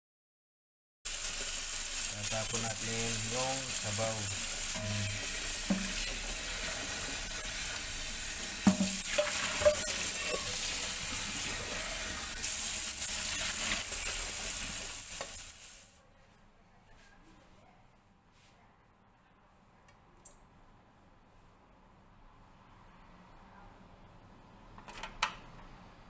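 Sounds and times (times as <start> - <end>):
water running into steel sink: 1.1 - 15.8
metal knocks of pots: 4.8 - 6.4, 8.6 - 10.7.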